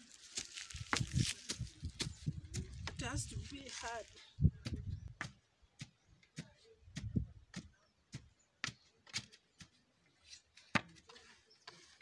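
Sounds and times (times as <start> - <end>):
wooden pole thudding on sawdust: 4.6 - 12.0.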